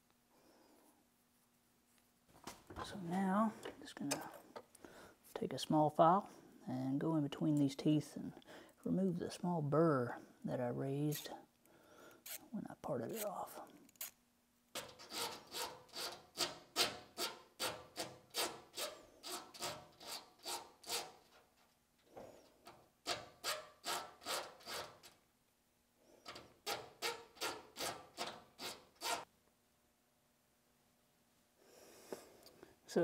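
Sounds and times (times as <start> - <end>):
hand file rasping on metal: 14.8 - 21.4, 23.1 - 25.1, 26.3 - 29.3.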